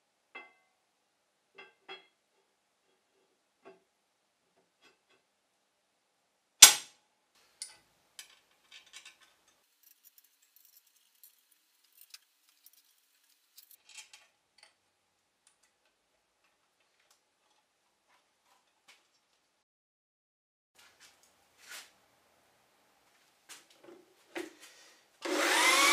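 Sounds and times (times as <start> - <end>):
metallic clicks of screws and pins: 7.6 - 14.8.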